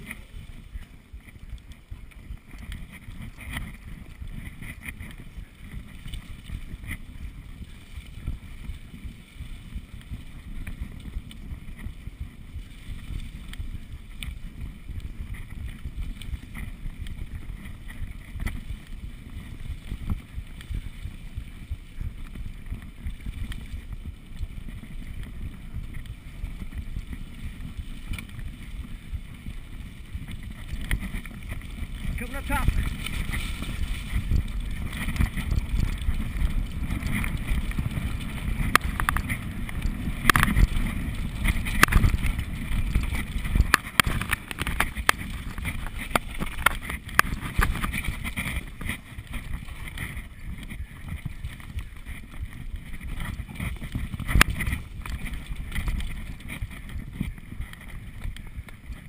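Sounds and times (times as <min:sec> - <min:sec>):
bike trail rattle: 0:00.0 - 0:59.0
wind rumbling on microphone: 0:00.0 - 0:59.0
bike clicks and knocks: 0:32.7 - 0:59.0.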